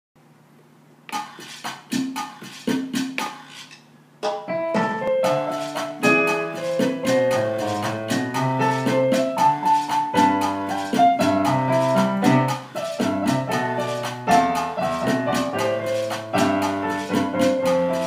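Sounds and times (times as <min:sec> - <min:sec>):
piano bass notes: 0:04.2 - 0:18.0
piano chords: 0:04.2 - 0:18.0.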